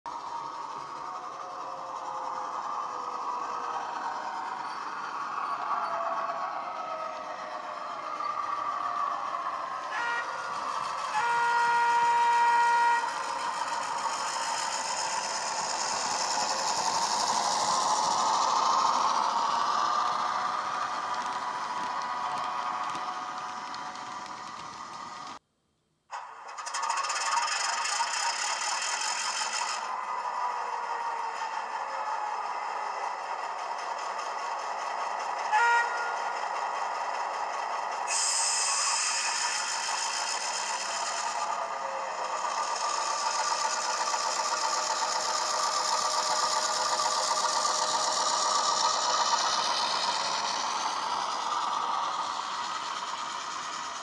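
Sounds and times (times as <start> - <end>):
model locomotive horn blast: 9.8 - 14.3, 35.4 - 36.7, 38.1 - 40.0
diesel engine sound from speaker: 26.6 - 54.0
loud hiss: 37.8 - 54.0.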